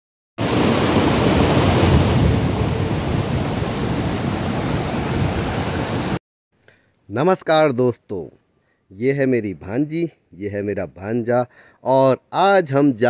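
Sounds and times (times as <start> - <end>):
waterfall rushing over rocks: 0.4 - 6.2.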